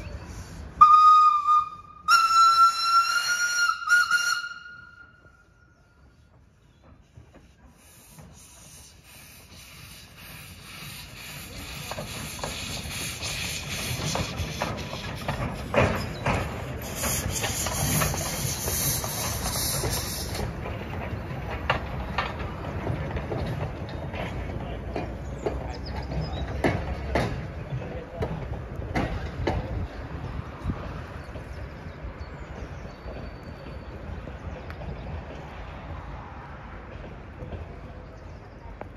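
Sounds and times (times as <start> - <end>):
wheels clicking over rails: 6.3 - 31.9
steam hissing: 7.1 - 20.7.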